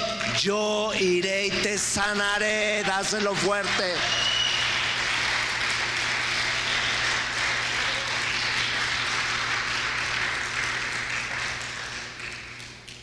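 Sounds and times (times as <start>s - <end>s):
congregation applauding: 2.0s - 13.0s.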